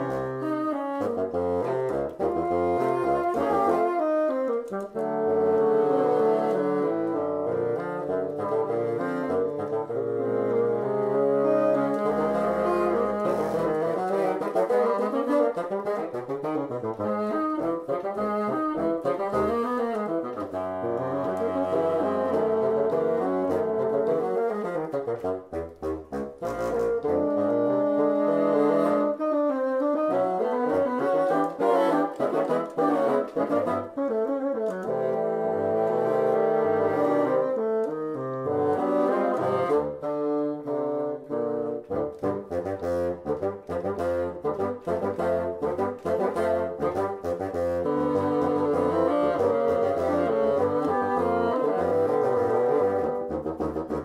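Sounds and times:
bassoon quartet playing funk: 0.0 - 54.0.

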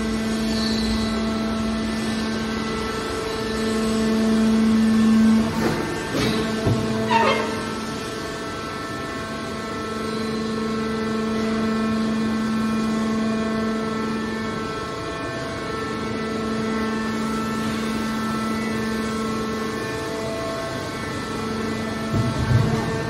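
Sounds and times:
hydraulic pump droning hum: 0.0 - 23.0.

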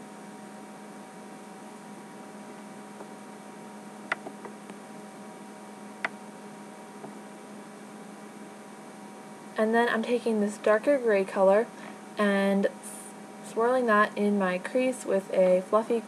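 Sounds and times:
electrical hum: 0.0 - 16.0
sharp clicks: 4.1 - 4.6.

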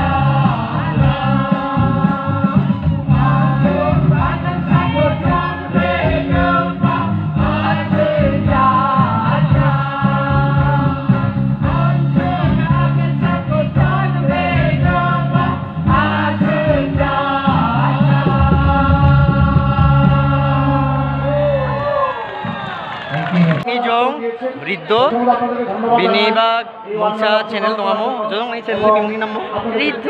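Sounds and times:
group singing over loudspeakers: 0.0 - 22.6.

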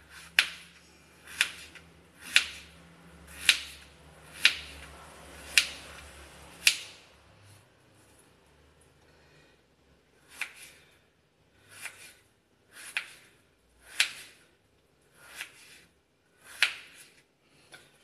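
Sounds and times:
knife cutting potato on board: 0.0 - 7.0, 10.2 - 10.9, 11.6 - 14.5, 15.1 - 17.9.

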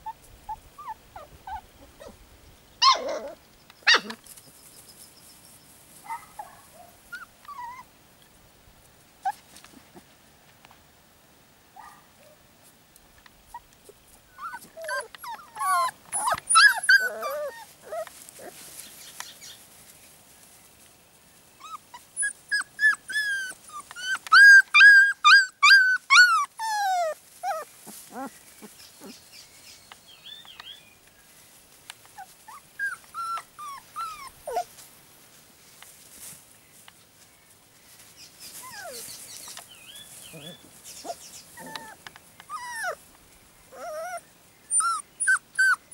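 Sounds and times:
puppies whining and yelping: 0.0 - 2.2, 2.8 - 4.2, 7.1 - 7.9, 14.3 - 18.9, 21.6 - 29.2, 32.1 - 34.7, 38.5 - 39.5, 40.3 - 43.0, 43.7 - 45.9.

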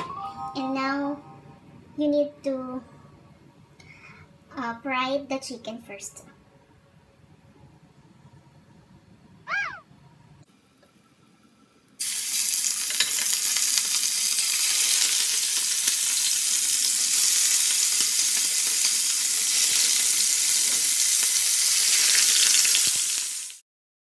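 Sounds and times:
chicken sizzling in hot oil: 12.0 - 23.6.

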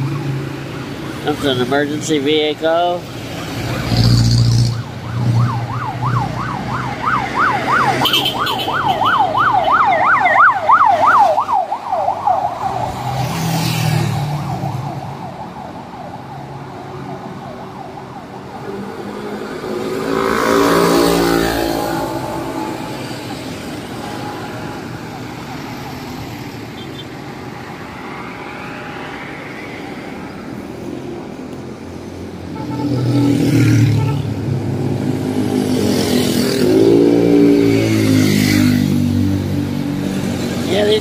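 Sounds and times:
road traffic: 0.0 - 41.0
siren yelping: 3.5 - 27.0
vehicle engine passing: 18.7 - 23.9.

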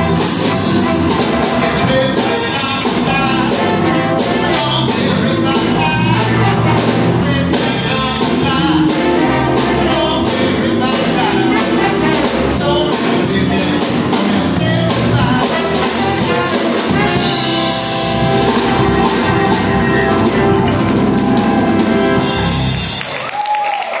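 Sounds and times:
live band playing: 0.0 - 23.5.

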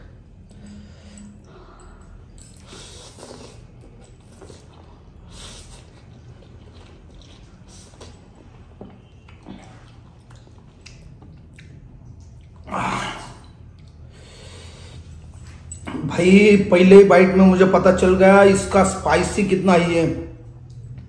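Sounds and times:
breathing through the nose: 0.5 - 3.8, 14.1 - 15.4
chewing: 2.4 - 14.2
slurping noodles: 2.6 - 10.5.

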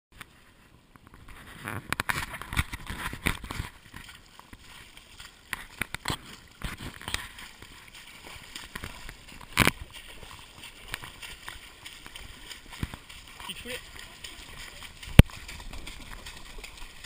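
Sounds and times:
footsteps splashing in stream: 0.2 - 17.0.

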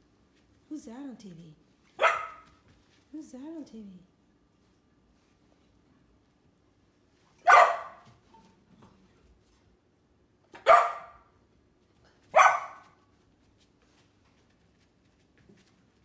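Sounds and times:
puppy barking: 2.0 - 2.6, 7.4 - 8.2, 10.5 - 11.3, 12.3 - 13.0.

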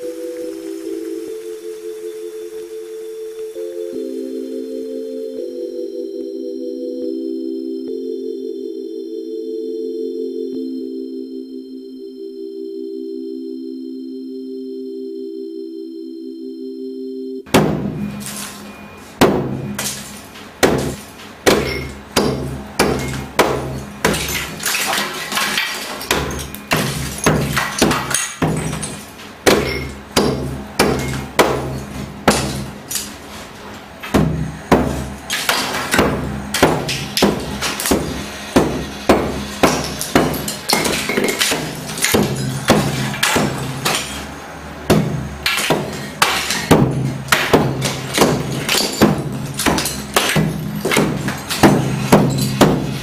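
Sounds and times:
low steady drone: 0.0 - 20.2
hammer breaking plaster wall: 17.5 - 18.6, 19.2 - 33.2, 34.1 - 44.3, 44.9 - 53.0.

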